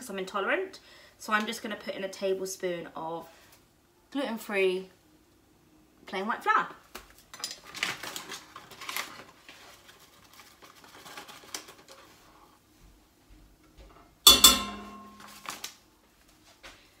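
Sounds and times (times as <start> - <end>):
paper bag rustling: 7.6 - 12.2
sharp ringing clank: 14.3 - 15.4.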